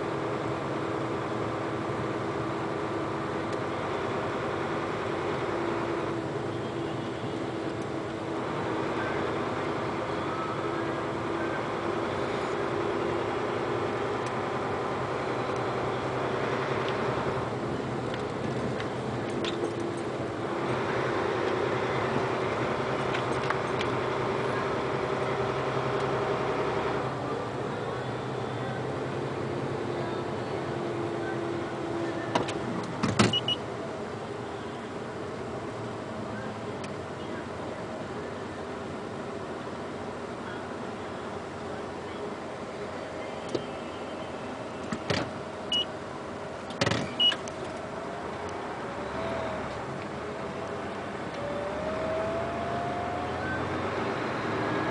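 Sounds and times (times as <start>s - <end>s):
tyre and road noise: 0.0s - 54.9s
vehicle engine drone: 0.0s - 54.9s
short high beeps: 45.7s - 45.9s, 47.1s - 47.4s.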